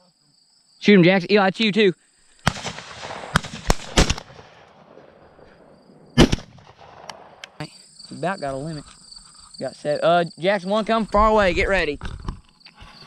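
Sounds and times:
shotgun shots: 2.4s - 7.6s.

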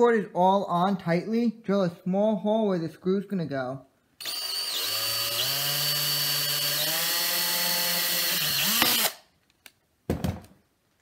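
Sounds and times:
cordless drill whining: 4.2s - 9.3s.

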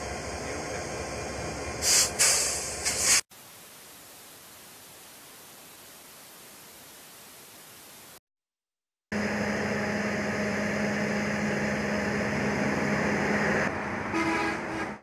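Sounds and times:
diesel locomotive idling: 0.0s - 3.0s, 9.1s - 14.1s.

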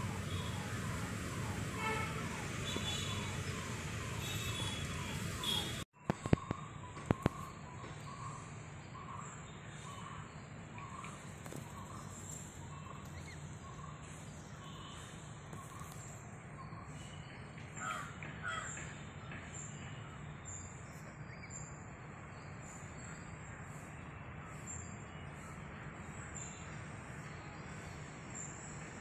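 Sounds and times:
crows cawing: 17.8s - 18.8s.

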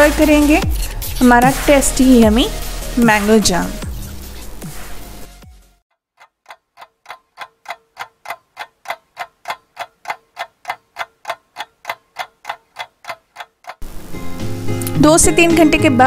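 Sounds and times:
clock ticking: 5.9s - 13.9s.

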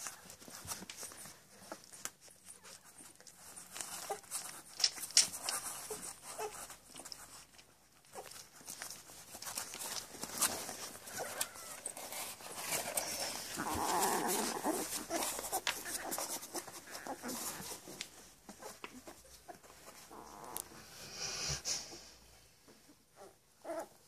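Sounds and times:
puppies snuffling breaths: 0.0s - 24.0s.

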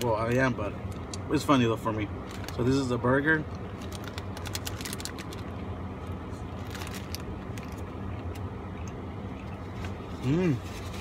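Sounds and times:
low car cabin hum: 0.0s - 11.0s
paper wrapper crackling: 2.2s - 5.5s, 6.5s - 7.9s.

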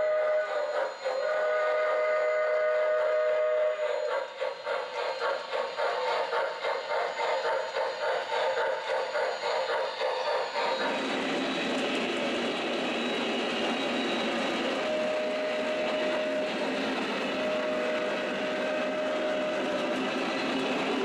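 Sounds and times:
long steady tones: 0.0s - 4.4s, 11.2s - 21.0s
model train rolling on track: 0.0s - 21.0s.

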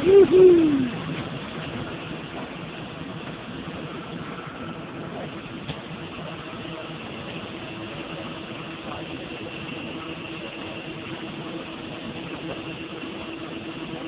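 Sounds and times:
water rushing and spraying: 0.0s - 8.1s
floatplane engine and propeller: 0.0s - 14.0s.

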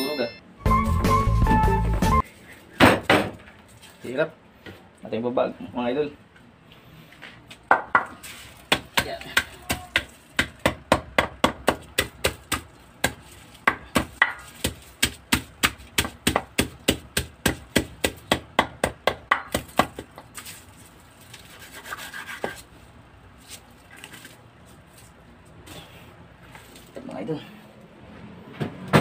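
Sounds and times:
pounding on wooden chopping board: 8.7s - 20.1s
rubbing and handling sounds: 20.3s - 27.0s.

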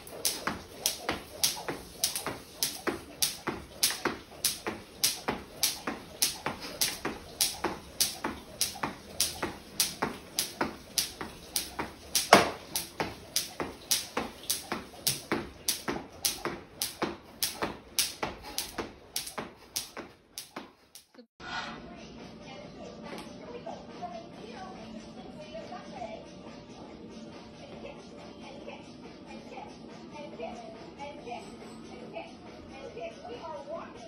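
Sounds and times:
feet landing: 0.0s - 20.9s
skipping rope slapping wooden floor: 0.0s - 21.2s.

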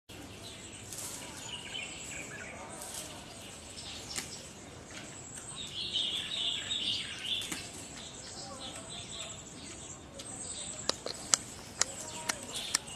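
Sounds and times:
birds chirping: 0.1s - 12.9s
sharp clicks: 10.2s - 12.9s.

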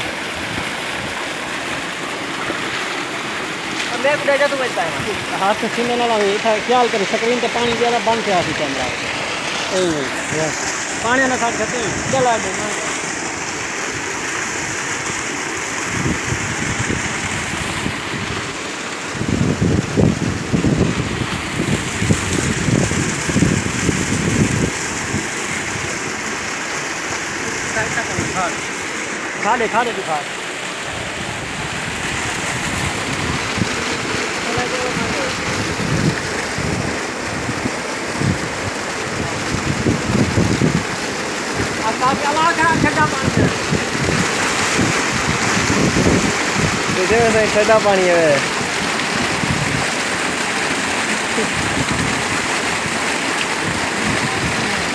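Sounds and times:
water gushing from a pipe: 0.0s - 54.9s
wind on microphone: 15.8s - 26.0s, 30.9s - 34.3s, 34.9s - 41.8s, 42.6s - 47.5s, 48.5s - 50.1s, 51.4s - 53.0s, 53.6s - 54.9s
low gusty rumbles: 42.6s - 47.5s.

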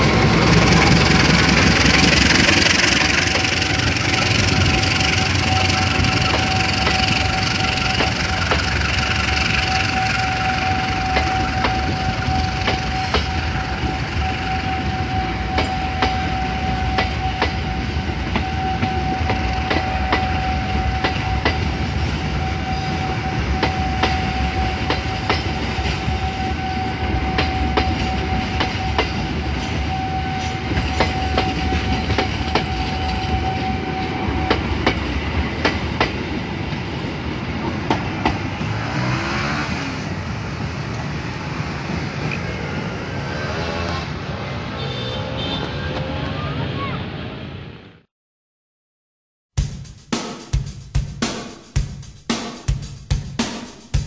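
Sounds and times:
train wheels clicking over rail joints: 0.0s - 26.6s, 27.3s - 39.8s
steady high tone: 0.0s - 35.0s.

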